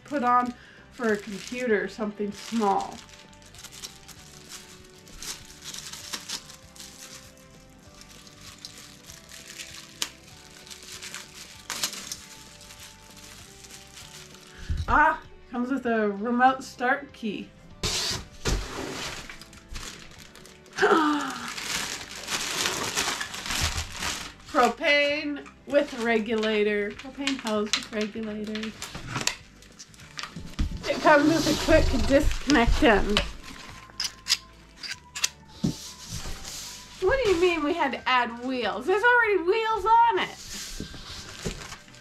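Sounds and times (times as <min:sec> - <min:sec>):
plastic bag crinkling: 0:00.0 - 0:15.0, 0:18.8 - 0:25.1, 0:25.7 - 0:35.3, 0:40.4 - 0:42.0
plastic packaging rustling: 0:00.0 - 0:15.0, 0:17.8 - 0:25.1, 0:25.7 - 0:37.8, 0:40.3 - 0:42.0
quiet background music: 0:00.0 - 0:42.0.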